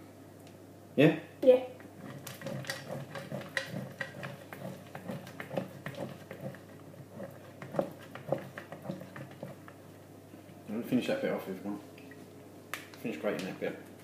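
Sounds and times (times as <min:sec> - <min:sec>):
cheese grating: 0:02.0 - 0:09.7.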